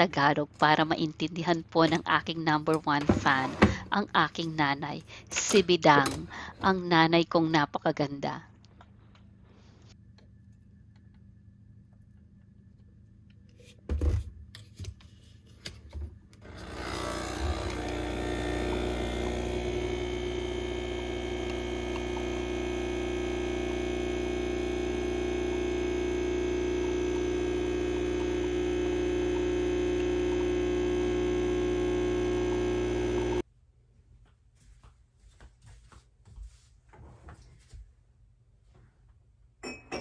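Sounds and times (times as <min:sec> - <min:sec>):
machine hum with whine: 0:16.4 - 0:33.4.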